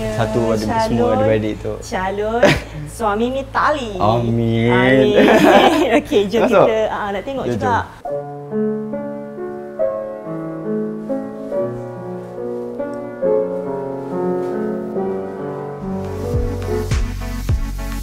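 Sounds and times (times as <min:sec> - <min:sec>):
upright piano melody: 0:00.0 - 0:01.9, 0:04.0 - 0:18.0
backing track with bass and drums: 0:16.0 - 0:18.0.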